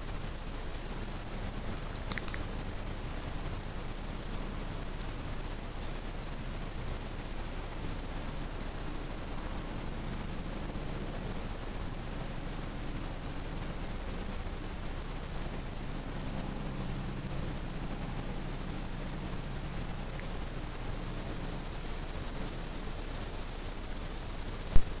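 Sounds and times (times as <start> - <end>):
insects trilling: 0.0 - 25.0
sharp click: 2.1 - 2.5.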